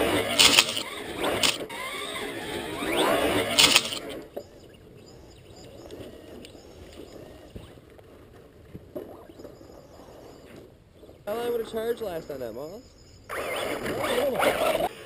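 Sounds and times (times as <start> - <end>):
toy truck speeding past: 0.0 - 4.3.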